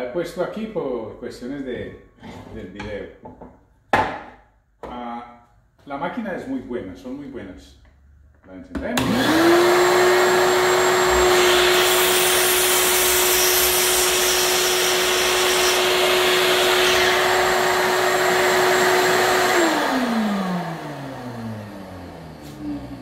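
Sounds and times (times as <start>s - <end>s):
miter saw cutting wood: 9.0s - 23.0s
vacuum motor whining hum: 9.0s - 23.0s.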